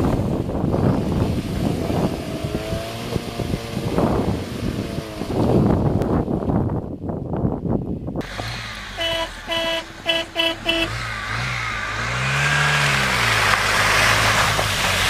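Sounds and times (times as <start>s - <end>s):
car engine revving: 8.2s - 15.0s
car horn honking: 8.3s - 11.1s
rush of water: 11.4s - 15.0s.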